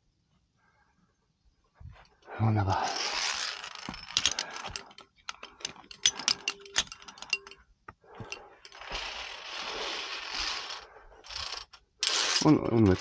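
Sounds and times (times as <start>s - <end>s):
carabiners clicking on steel cable: 2.7s - 13.0s.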